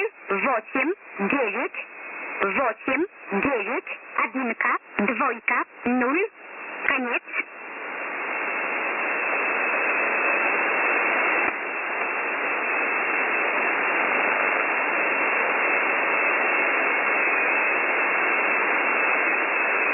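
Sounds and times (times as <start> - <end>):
shortwave radio static: 0.0 - 19.9
radio click: 6.7 - 7.5, 11.1 - 12.4, 19.2 - 19.6.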